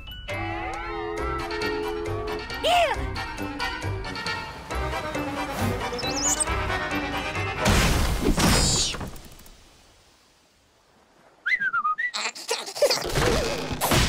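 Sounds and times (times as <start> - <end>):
short wavering whistle: 6.0 - 6.5, 11.4 - 12.2.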